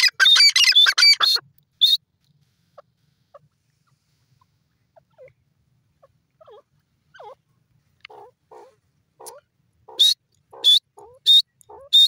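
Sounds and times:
francolin calling: 8.1s - 12.0s.

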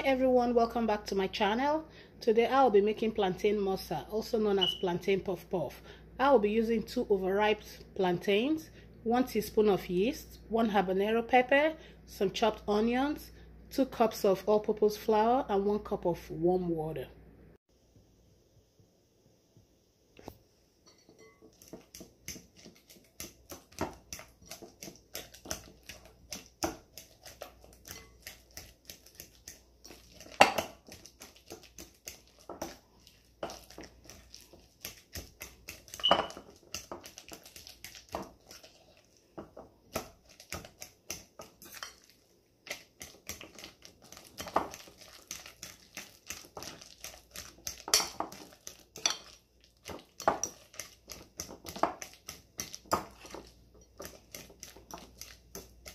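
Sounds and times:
fork clinking against glass bowl: 20.9s - 21.5s, 36.0s - 36.4s, 49.0s - 49.3s
fork mashing plantains: 20.9s - 55.9s.

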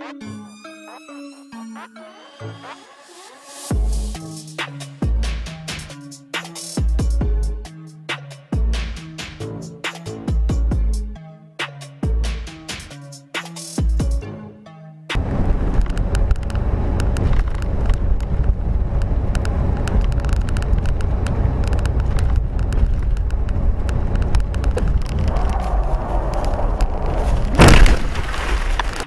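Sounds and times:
car road and engine rumble: 15.1s - 29.0s
harsh rushing noise: 15.1s - 29.0s
small clicks and crackles: 15.7s - 29.0s
loud impact: 26.9s - 29.0s.

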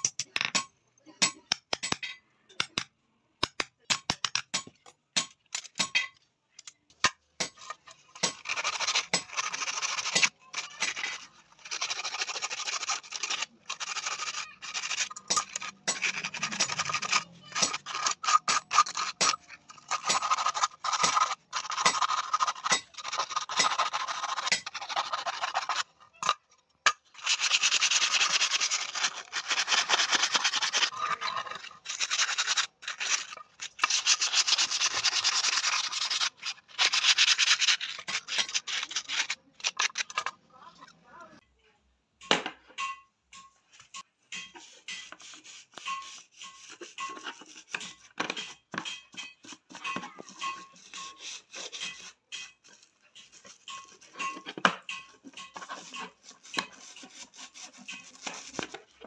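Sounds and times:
sandpaper rasping on steel rod: 7.6s - 25.9s, 27.1s - 40.0s, 44.4s - 59.0s.

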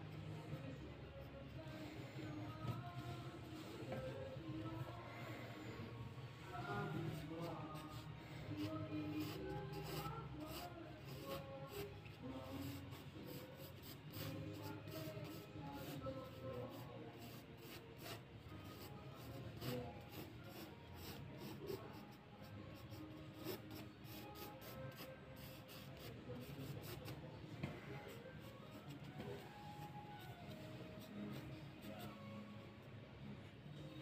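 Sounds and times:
pencil scratching on paper: 6.7s - 27.2s.

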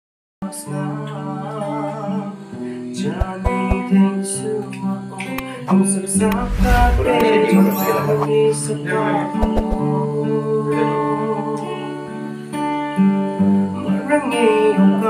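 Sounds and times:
man singing: 0.4s - 12.2s, 13.9s - 15.0s
acoustic guitar playing chords: 3.0s - 4.0s.

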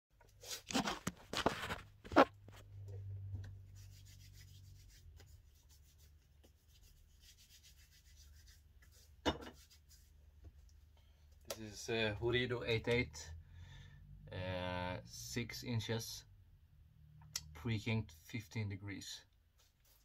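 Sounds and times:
soft rubbing and scratching: 0.3s - 2.8s, 3.5s - 10.6s, 19.6s - 20.0s.

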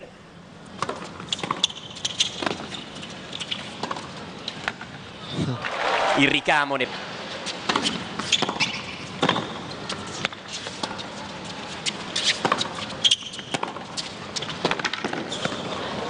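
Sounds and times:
racket striking tennis ball: 0.8s - 2.9s, 7.6s - 11.0s, 11.8s - 15.6s.

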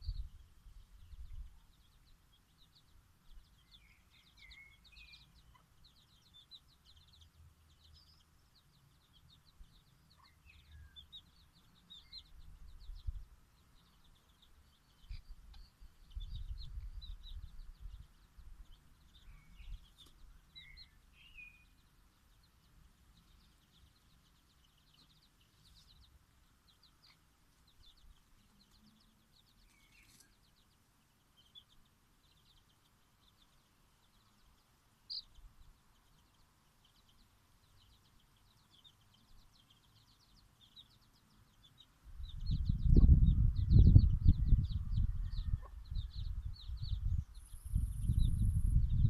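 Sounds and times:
low rumble on microphone: 0.0s - 1.7s, 12.1s - 14.4s, 15.0s - 20.0s, 42.1s - 49.0s
chicks cheeping: 0.0s - 49.0s.

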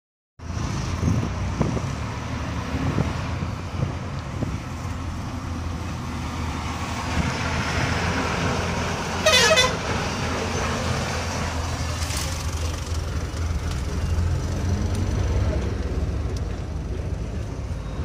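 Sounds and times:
bus engine and road rumble: 0.4s - 18.0s
pulsing horn blast: 9.2s - 9.8s.

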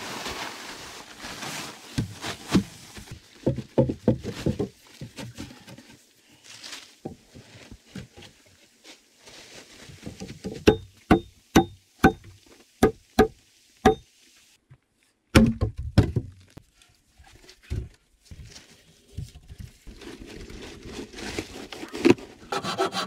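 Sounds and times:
sharp knocks on logs: 10.4s - 14.0s, 15.3s - 16.3s.

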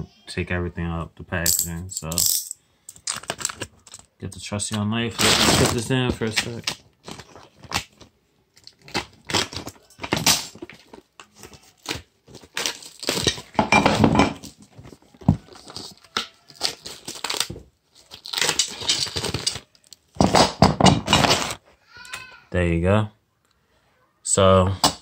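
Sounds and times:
packaging rustling and crinkling: 2.9s - 4.1s, 5.1s - 13.6s, 14.4s - 20.4s
packaging cut and torn with knife: 8.6s - 13.5s, 15.5s - 20.5s.

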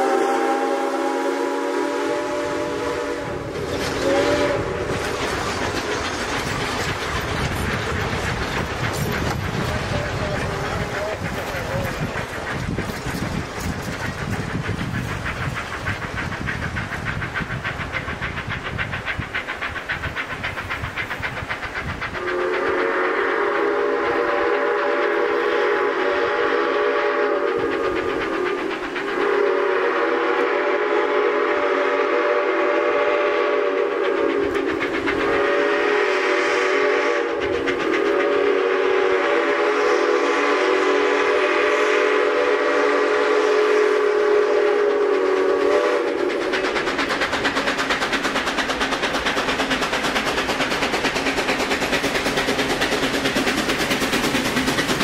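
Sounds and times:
train horn blasts: 0.0s - 4.9s, 22.2s - 27.6s, 29.2s - 34.2s, 35.4s - 37.4s, 38.2s - 46.2s
train rumbling: 0.0s - 55.0s.

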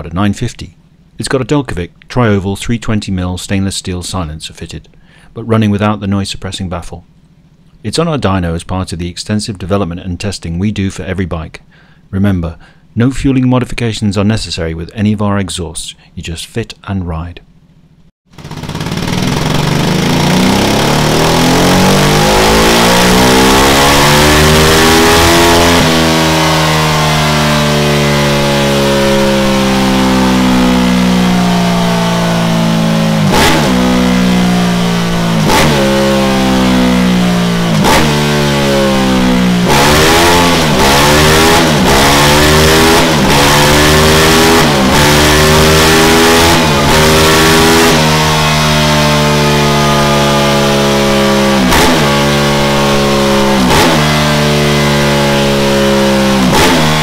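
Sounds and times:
motorcycle engine revving on a dyno: 18.3s - 57.0s.

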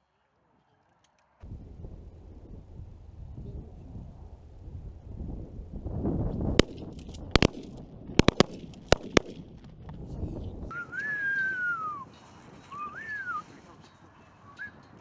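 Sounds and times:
wind rumble on microphone: 1.4s - 13.6s
shotgun blasts: 6.6s - 9.6s.

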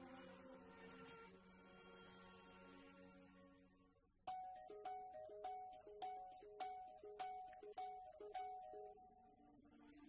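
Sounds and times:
string orchestra sustained chord: 0.0s - 3.9s.

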